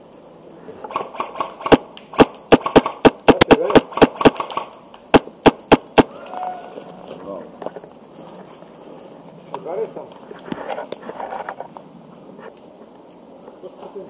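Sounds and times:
airsoft rifle shots cracking: 0.8 - 6.2.

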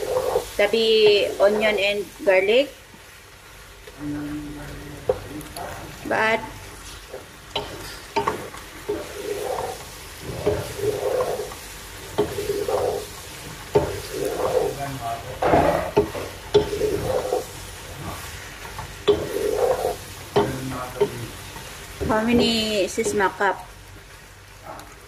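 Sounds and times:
wooden spatula scraping a pot: 0.0 - 1.9, 6.7 - 23.4
pasta sizzling: 0.0 - 25.0.

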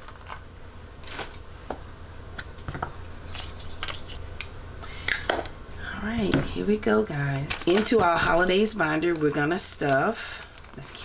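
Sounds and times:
small items rustling and clicking: 0.0 - 1.4, 7.4 - 11.0.

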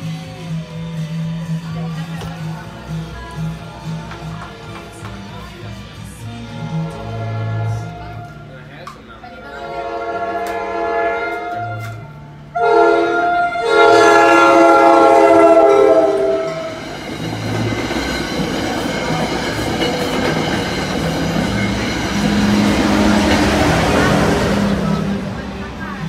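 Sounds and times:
train horn blasts: 6.2 - 8.7, 9.5 - 16.9, 21.3 - 25.4
train wheels on rail: 13.8 - 26.0.

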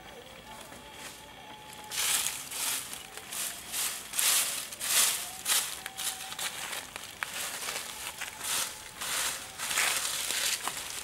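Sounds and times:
dry leaves and twigs crunching: 0.5 - 11.0.

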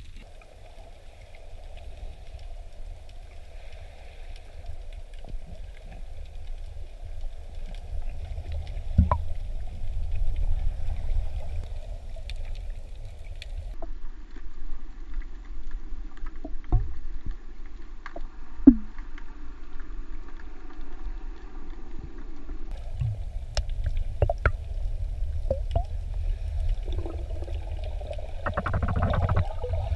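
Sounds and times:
underwater rumble of moving water: 0.0 - 29.9
sharp clicks and crackles: 22.7 - 24.7, 26.6 - 29.9.

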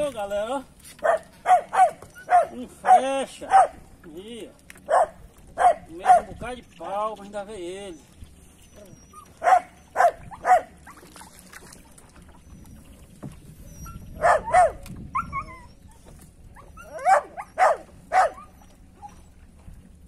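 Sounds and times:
dog barking: 1.0 - 3.8, 4.9 - 6.3, 9.4 - 10.8, 14.2 - 14.8, 16.8 - 18.5.

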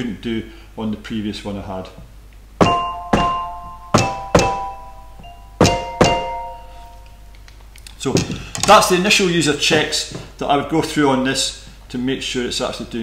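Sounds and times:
dull thunk of mallet hits: 2.6 - 4.8, 5.6 - 6.6
mallet percussion chords ringing: 2.6 - 7.4.

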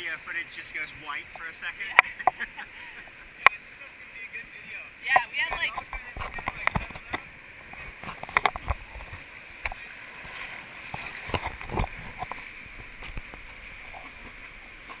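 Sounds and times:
knocks and splashes on raft: 5.2 - 15.0.

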